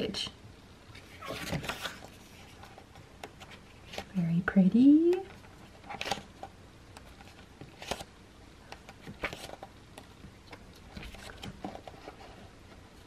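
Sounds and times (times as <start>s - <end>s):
book pages turning: 1.0s - 4.2s, 5.2s - 8.1s, 8.7s - 13.0s.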